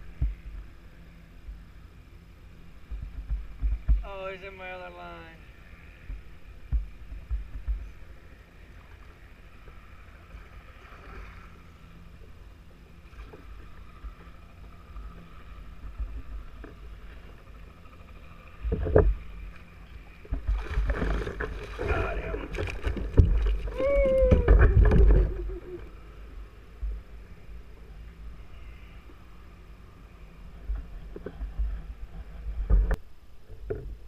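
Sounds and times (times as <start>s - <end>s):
water splashing: 18.8s - 25.9s
wind on microphone: 20.3s - 25.9s.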